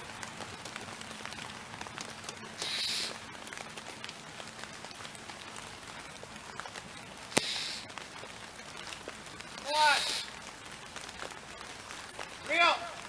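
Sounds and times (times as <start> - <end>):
rain falling: 0.0 - 13.0
raindrops ticking: 0.0 - 13.0
brief loud hiss: 2.6 - 3.2, 7.3 - 7.9, 9.9 - 10.3.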